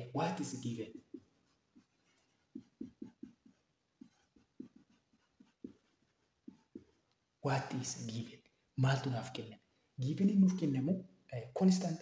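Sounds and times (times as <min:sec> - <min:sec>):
marker pen writing on whiteboard: 0:00.0 - 0:08.3.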